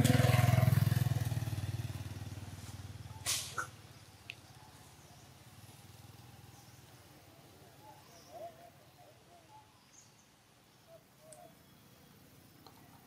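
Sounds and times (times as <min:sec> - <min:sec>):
distant engine hum: 0:00.0 - 0:09.4.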